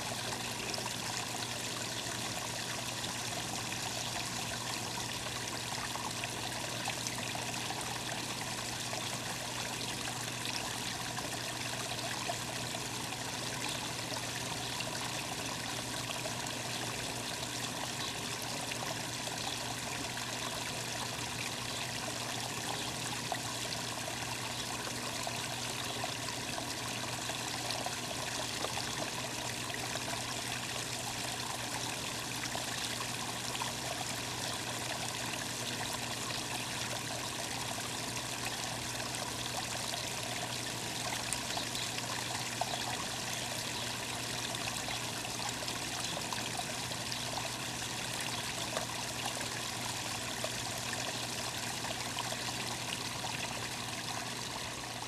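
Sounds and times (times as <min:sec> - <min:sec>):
water trickling: 0:00.0 - 0:55.0.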